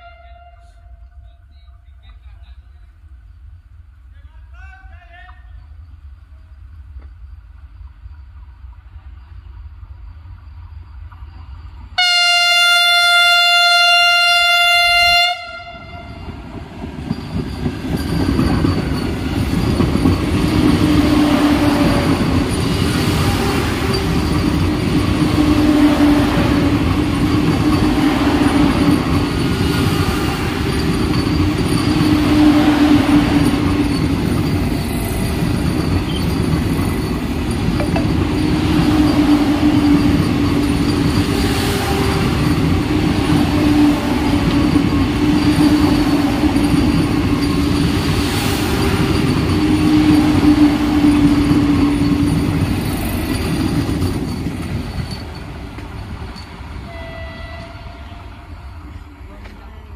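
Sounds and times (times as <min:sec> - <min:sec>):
train horn blast: 0:00.0 - 0:01.2, 0:12.0 - 0:16.4, 0:32.1 - 0:33.5, 0:56.8 - 0:58.9
train wheels rumbling on rails: 0:00.0 - 0:59.9.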